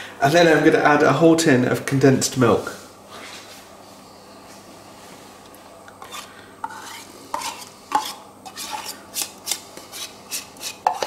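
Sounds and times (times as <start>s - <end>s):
metal spoon scraping tin can: 6.0s - 11.0s.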